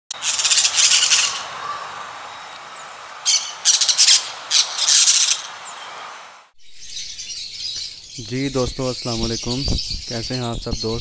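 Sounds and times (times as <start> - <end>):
birds squawking: 0.1 - 11.0
steady hiss: 0.2 - 6.5.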